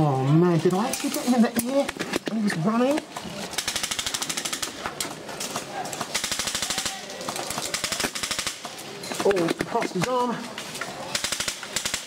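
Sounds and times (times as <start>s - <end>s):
airsoft guns firing rapid bursts: 3.5s - 4.9s, 6.0s - 8.8s, 11.1s - 12.0s.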